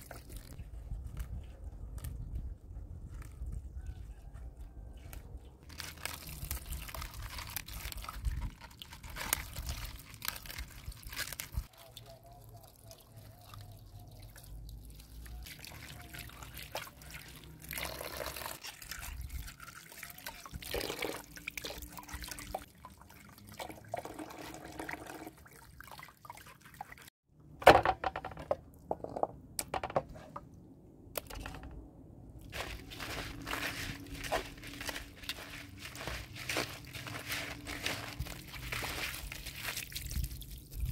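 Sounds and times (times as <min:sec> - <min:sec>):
hands swishing leaves in water: 0:05.1 - 0:14.1, 0:32.5 - 0:40.9
water pouring into metal basin: 0:11.7 - 0:27.1
sharp knocks and clatters: 0:27.6 - 0:30.4.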